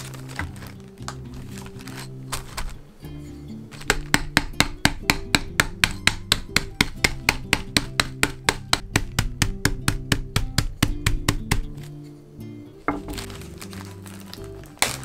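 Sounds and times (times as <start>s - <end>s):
rolling pin pounding biscuits: 3.7s - 11.9s.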